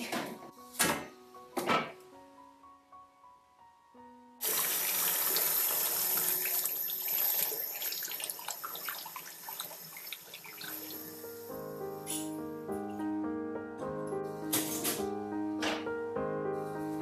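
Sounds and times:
faint music: 0.0 - 4.4.

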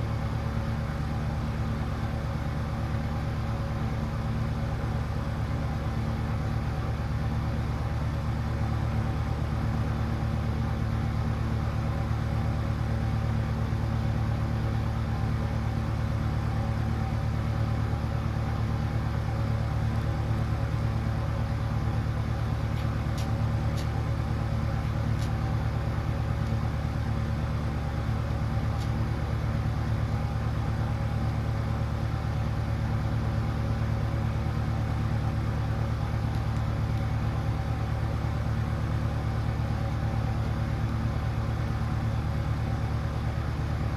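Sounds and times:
low machine hum: 0.0 - 43.9.

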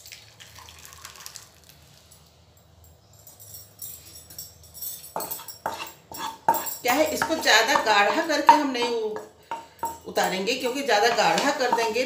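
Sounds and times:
thick liquid pouring into bowl: 0.0 - 2.0
light jingling: 2.6 - 8.9
utensil scraping and knocking pan: 5.1 - 12.0.

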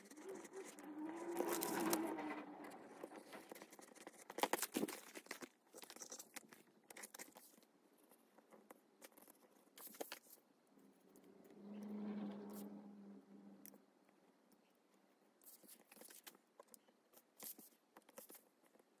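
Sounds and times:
blade cutting leather and paper: 0.0 - 2.2.

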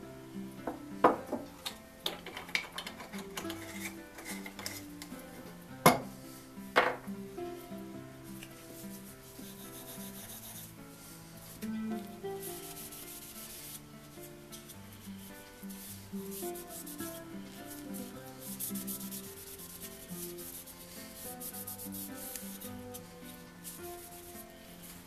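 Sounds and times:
background music: 0.0 - 25.0
cloth rubbing on wood: 8.5 - 25.0.

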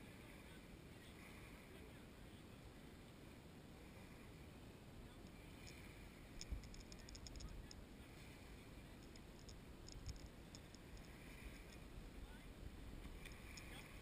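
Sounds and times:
rapid high-pitched clicking: 5.6 - 7.8, 9.0 - 11.8.

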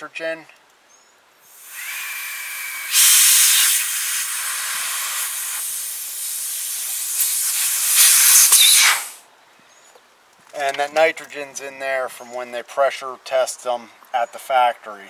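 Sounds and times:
gas hissing from copper line: 1.4 - 9.2.

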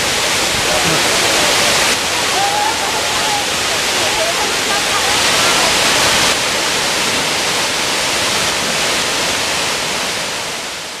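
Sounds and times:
waterfall rushing onto rocks: 0.0 - 11.0.

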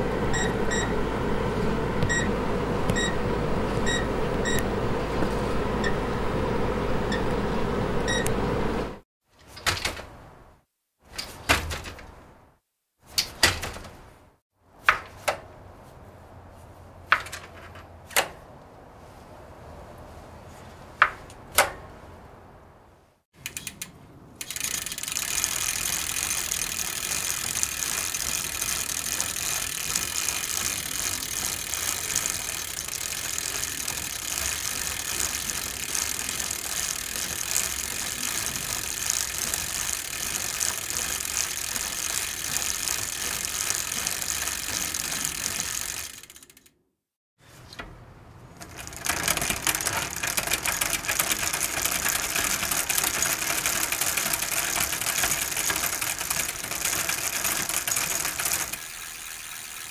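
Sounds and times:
bicycle chain and gears clicking: 0.0 - 9.0, 23.4 - 46.7, 48.6 - 59.9
bicycle with old chain pedalled: 0.0 - 9.0, 23.4 - 46.8, 48.6 - 59.9.

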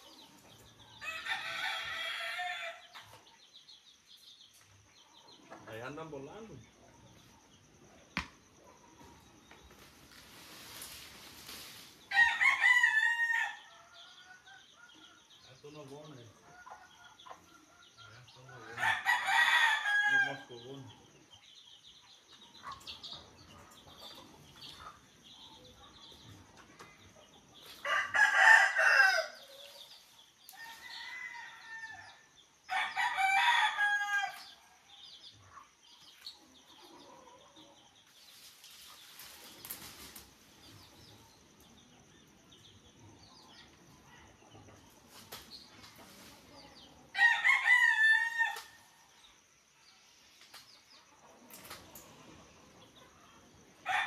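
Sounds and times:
rooster crowing: 1.0 - 2.9, 12.1 - 14.5, 18.6 - 20.5, 27.8 - 29.6, 30.5 - 34.5, 47.1 - 48.8.

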